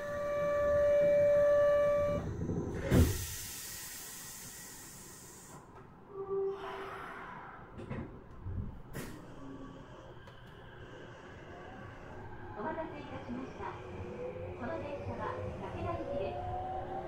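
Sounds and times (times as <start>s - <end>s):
hiss of air: 2.9s - 5.6s.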